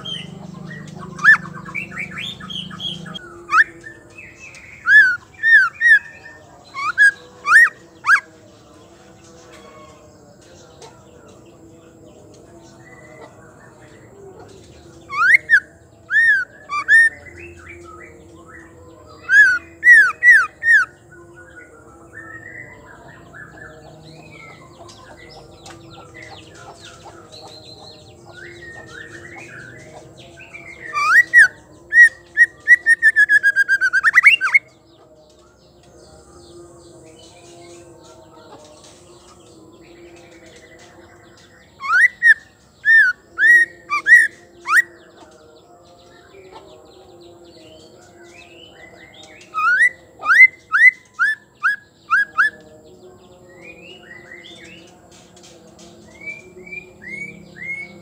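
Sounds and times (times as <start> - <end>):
bird singing whistled notes: 0.0 - 8.2, 15.1 - 23.6, 27.4 - 34.7, 41.3 - 44.9, 47.7 - 52.7
bird twittering: 0.0 - 8.2, 15.1 - 17.9, 30.5 - 34.7, 41.8 - 44.9, 49.3 - 52.8.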